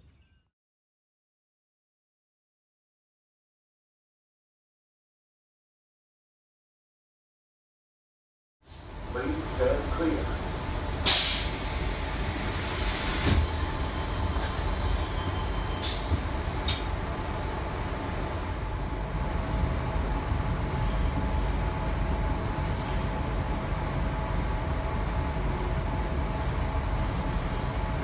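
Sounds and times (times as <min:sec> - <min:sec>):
train door hiss: 0:08.7 - 0:17.0
train doors shutting with bang: 0:08.8 - 0:17.2
electric train humming: 0:08.8 - 0:20.8.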